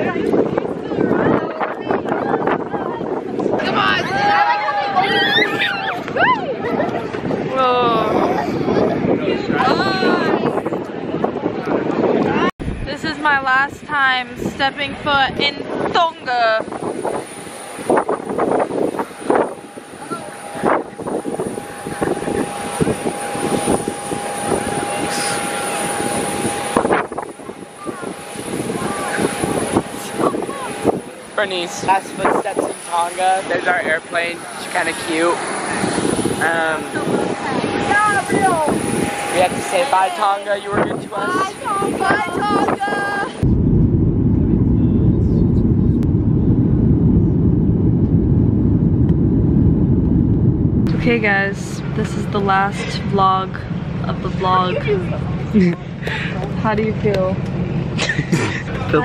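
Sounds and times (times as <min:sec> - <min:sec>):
jet engine whine: 0:00.0 - 0:59.0
rushing roar: 0:32.8 - 0:59.0
low thumps: 0:43.4 - 0:58.7.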